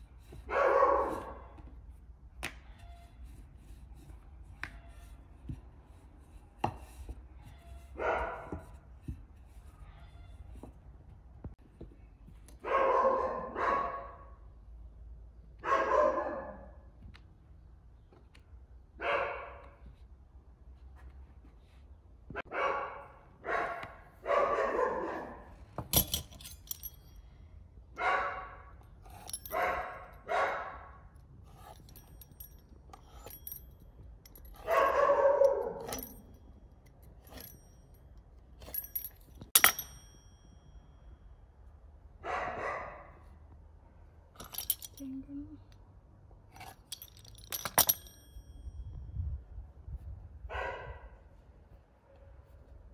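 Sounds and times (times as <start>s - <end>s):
dog barking: 0.5s - 1.6s, 8.0s - 8.6s, 12.6s - 14.4s, 15.6s - 16.8s, 19.0s - 19.8s, 22.4s - 25.5s, 28.0s - 28.7s, 29.5s - 31.0s, 34.6s - 36.0s, 42.2s - 43.2s, 50.5s - 51.3s.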